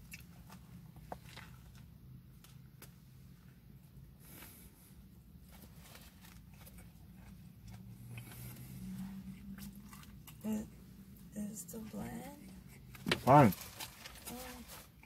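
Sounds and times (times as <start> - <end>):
faint chewing: 0.0 - 2.9, 5.3 - 11.3
low steady hum: 0.0 - 15.0.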